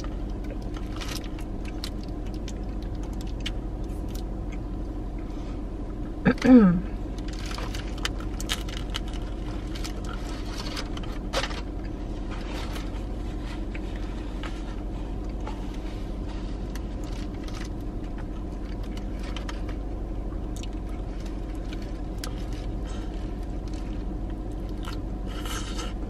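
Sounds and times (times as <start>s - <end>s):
chewing crusty bread: 0.0s - 5.4s, 7.0s - 26.0s
low hum in car cabin: 0.0s - 26.0s
paper wrapper crinkling: 7.2s - 13.7s.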